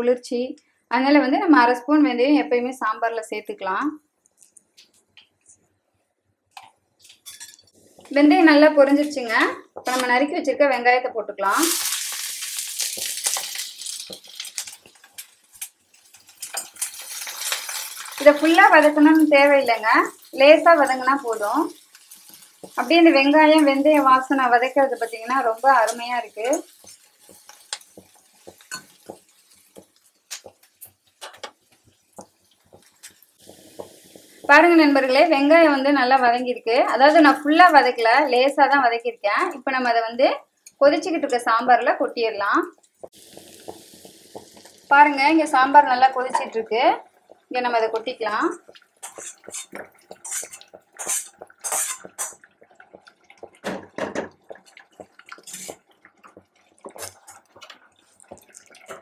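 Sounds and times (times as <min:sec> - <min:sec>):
bubbling liquid: 0:11.6 - 0:36.0, 0:42.6 - 0:59.0
spatula scraping a pan: 0:20.8 - 0:34.6, 0:48.9 - 0:52.4, 0:55.3 - 0:55.9
metal scraping and knocking on pan: 0:49.0 - 0:52.4.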